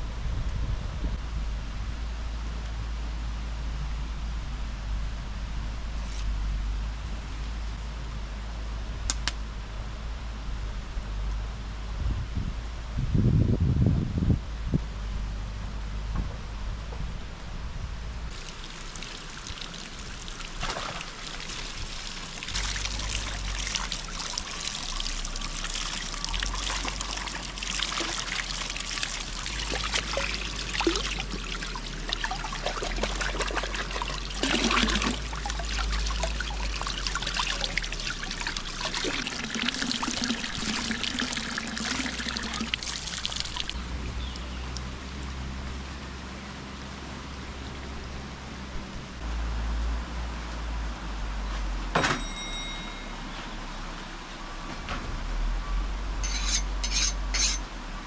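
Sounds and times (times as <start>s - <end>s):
water trickling and splashing: 18.3s - 48.7s.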